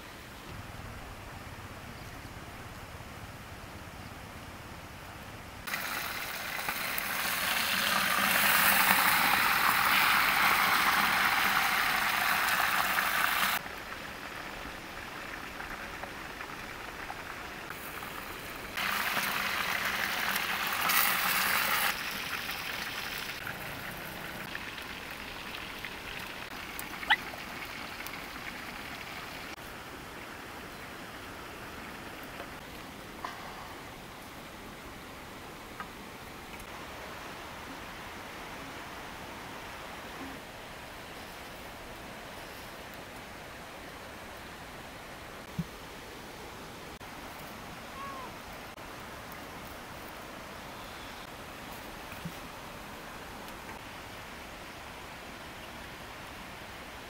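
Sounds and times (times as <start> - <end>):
low steady hiss: 0.0 - 57.0
food sizzling in a pot: 5.7 - 13.6, 17.7 - 26.4.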